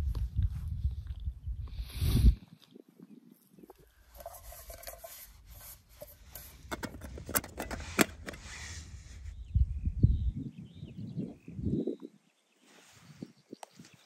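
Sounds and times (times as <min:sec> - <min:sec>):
metal pot scraping: 0:04.1 - 0:08.8
sharp metallic clicks: 0:06.7 - 0:08.4
low wind rumble: 0:07.0 - 0:12.0.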